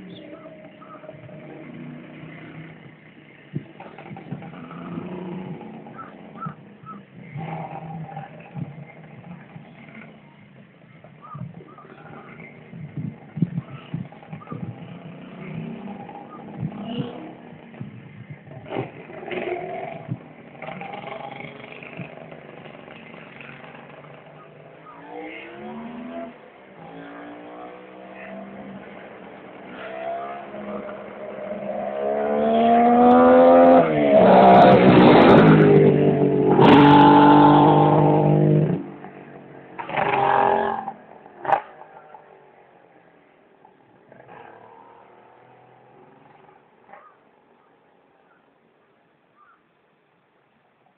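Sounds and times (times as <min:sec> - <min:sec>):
motorcycle accelerating: 0:00.0 - 0:47.3.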